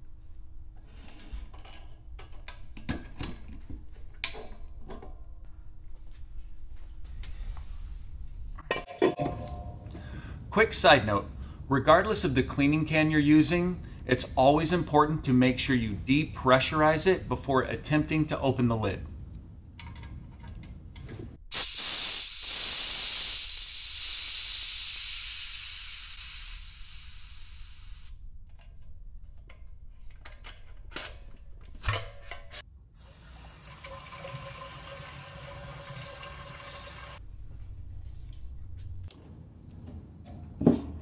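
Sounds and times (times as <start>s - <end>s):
pressure valve hissing: 21.5s - 28.2s.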